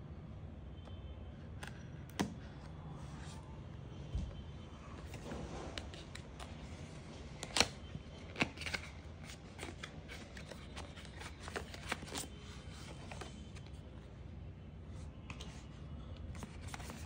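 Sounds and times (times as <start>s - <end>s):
card rustling and scraping: 5.0s - 14.0s, 15.0s - 17.0s.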